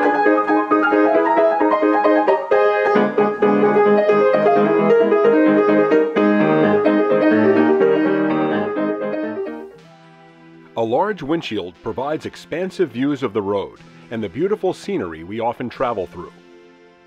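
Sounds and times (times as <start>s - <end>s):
lively piano music: 0.0s - 10.1s.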